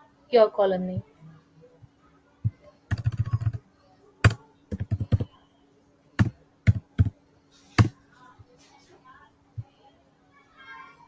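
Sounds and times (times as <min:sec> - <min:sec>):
typing on computer keyboard: 0:02.9 - 0:03.6, 0:04.2 - 0:05.3, 0:06.2 - 0:07.1.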